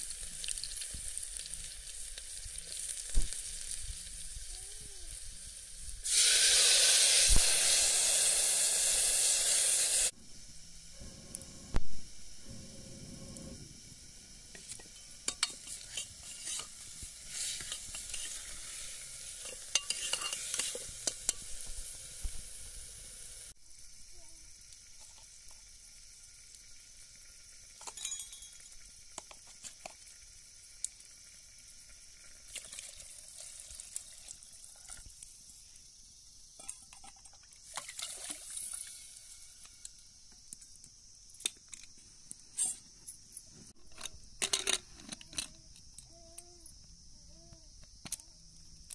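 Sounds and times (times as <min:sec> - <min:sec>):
food sizzling in a pan: 0:00.0 - 0:41.8
spoon scraping and clinking on metal: 0:14.6 - 0:18.6, 0:19.4 - 0:21.4, 0:27.8 - 0:28.6.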